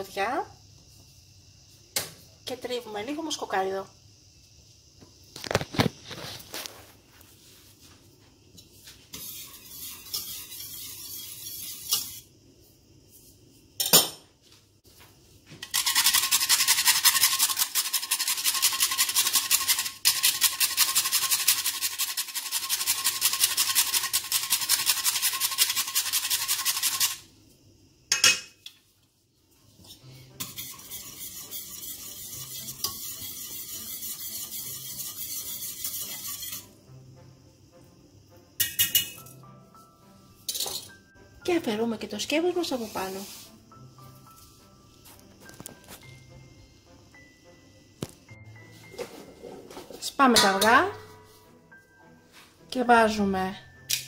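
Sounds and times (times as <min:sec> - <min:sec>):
nutmeg rasping on metal grater: 0:15.7 - 0:27.2, 0:30.4 - 0:36.7.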